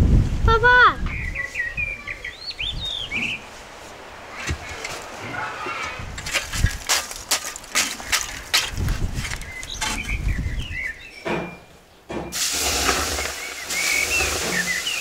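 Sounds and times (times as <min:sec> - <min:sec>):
scraper raking hot coals: 0:04.3 - 0:10.2, 0:12.3 - 0:15.0
loud hiss of steam: 0:12.3 - 0:15.0.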